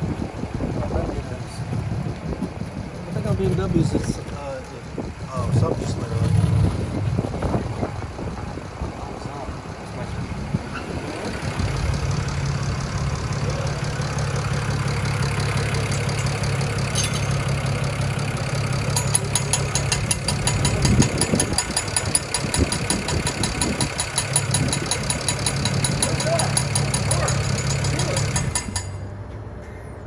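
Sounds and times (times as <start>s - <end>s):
car engine idling: 0.0s - 29.1s.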